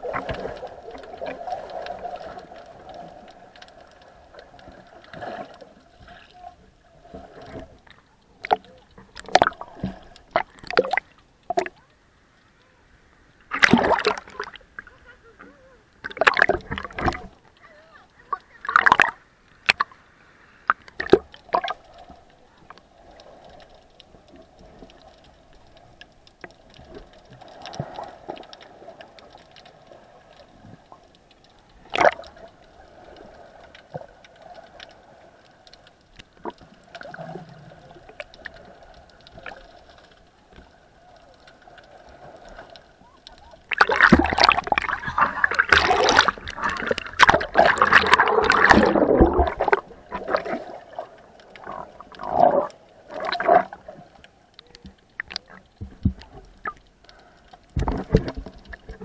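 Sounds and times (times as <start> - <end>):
muffled underwater wash: 0.0 - 59.0
water splashing and sloshing: 0.0 - 59.0
underwater clicks and knocks: 7.4 - 11.8, 16.0 - 17.6, 18.3 - 19.9, 20.7 - 21.8, 30.7 - 32.4, 41.4 - 50.6, 51.4 - 59.0.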